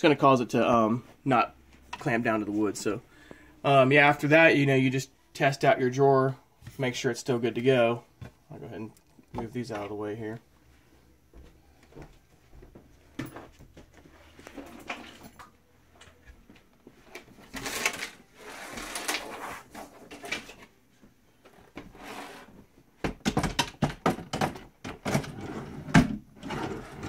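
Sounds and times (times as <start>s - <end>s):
drawer rustling and scraping: 17.2s - 20.7s, 21.5s - 22.7s, 25.0s - 27.0s.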